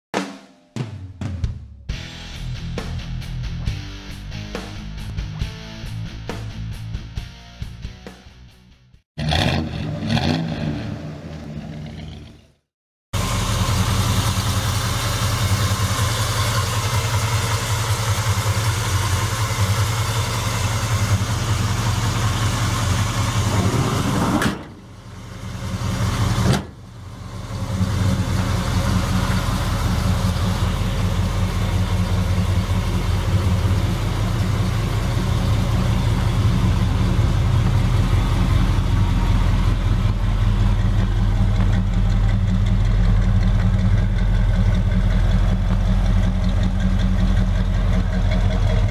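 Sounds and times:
car engine idling: 13.2s - 48.9s.

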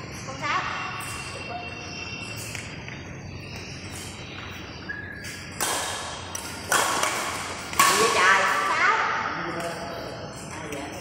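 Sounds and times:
racket striking shuttlecock: 5.2s - 8.2s.

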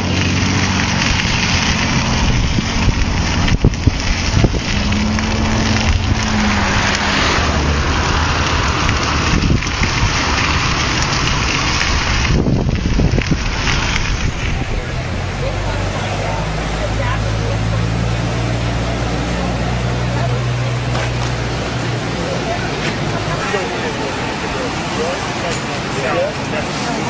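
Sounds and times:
rain: 0.0s - 27.0s
vehicle engines humming: 0.0s - 27.0s
wind rushing: 0.3s - 16.6s.

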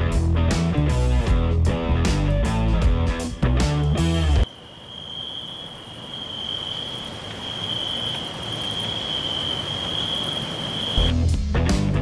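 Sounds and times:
insect high-pitched trill: 4.4s - 11.1s.

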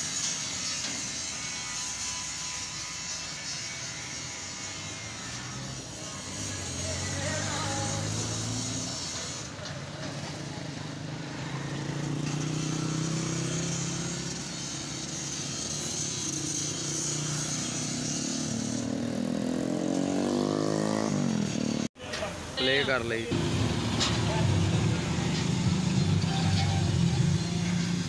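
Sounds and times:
vehicle engine running: 23.3s - 28.0s.

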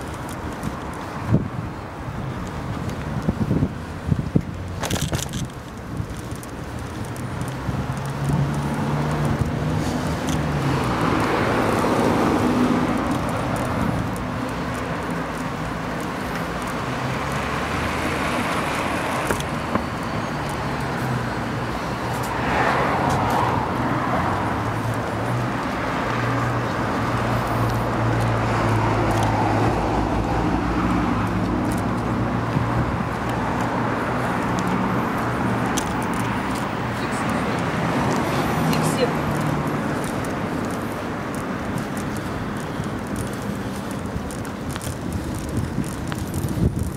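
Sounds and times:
street traffic noise: 0.0s - 46.9s
vehicles passing: 0.0s - 46.9s.

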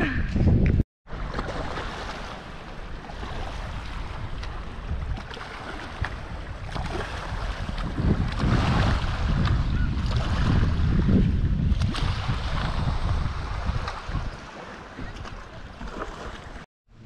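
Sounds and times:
wind buffeting microphone: 0.0s - 0.8s, 3.4s - 15.9s
water lapping on rocky shore: 1.1s - 16.7s.

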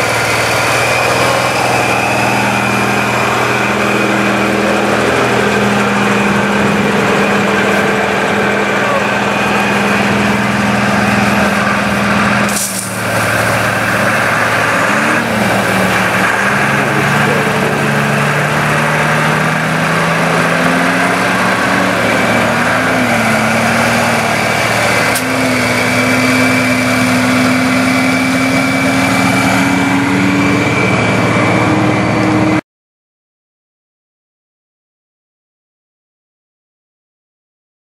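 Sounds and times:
truck engine and pump running: 0.0s - 32.6s
water spray hissing: 11.2s - 17.4s.

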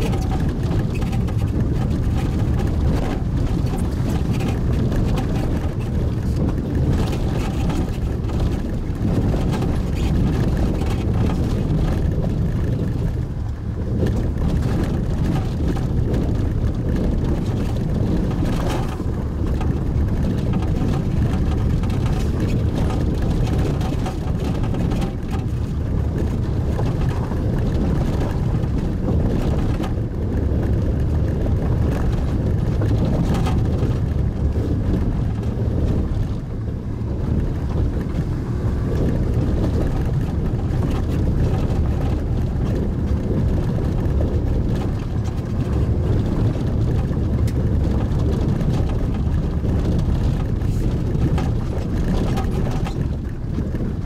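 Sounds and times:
engine and road drone in cabin: 0.0s - 54.0s
gravel clicking under tyres: 0.0s - 54.0s.

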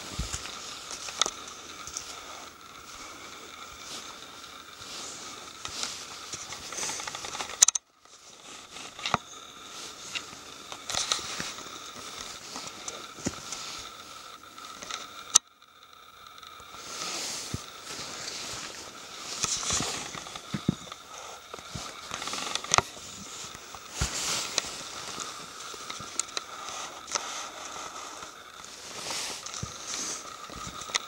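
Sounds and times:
soft footsteps on forest floor: 0.0s - 7.3s, 16.8s - 30.8s
light crackles: 0.0s - 31.0s
camera handling noise: 10.1s - 13.6s, 19.3s - 27.3s.

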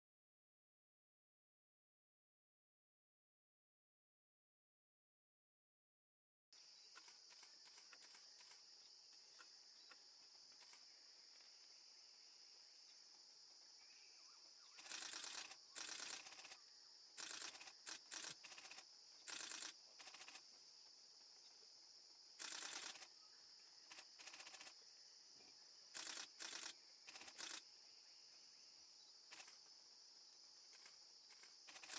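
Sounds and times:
high-pitched insect drone: 6.6s - 31.9s.

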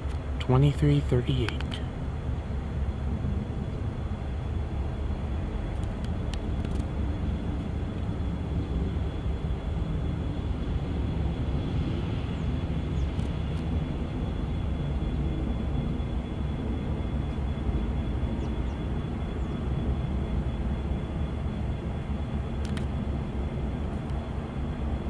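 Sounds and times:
jet engines rumbling overhead: 0.0s - 25.0s
light clicks: 22.6s - 22.9s.

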